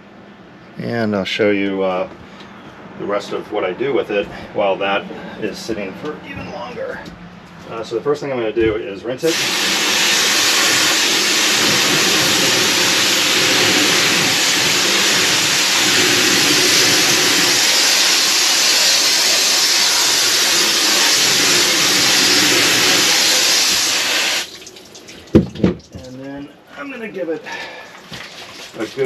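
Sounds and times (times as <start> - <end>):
hose spraying water: 9.2 - 25.9, 28.1 - 29.0.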